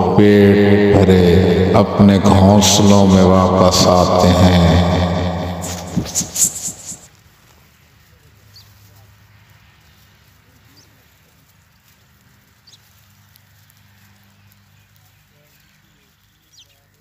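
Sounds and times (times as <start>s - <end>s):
sparrows chirping: 12.6s - 13.0s, 14.3s - 17.0s.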